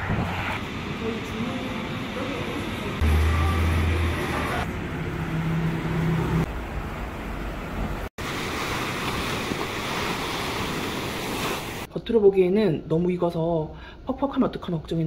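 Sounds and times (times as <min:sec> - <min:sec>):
street traffic: 0:00.0 - 0:08.1
waves washing onto beach: 0:08.2 - 0:11.9.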